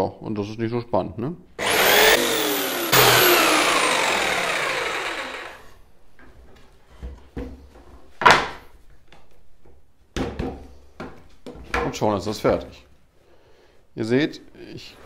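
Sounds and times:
jigsaw motor whining: 0:01.6 - 0:05.8.

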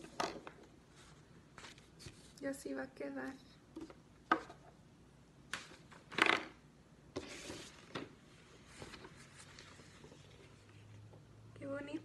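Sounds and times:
paper rustling and crinkling: 0:07.2 - 0:11.0.

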